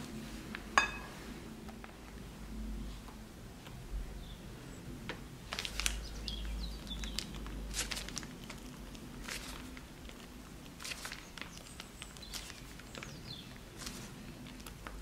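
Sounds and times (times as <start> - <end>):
low steady hum: 0.0 - 15.0
piping bag rustling and squishing: 5.4 - 15.0.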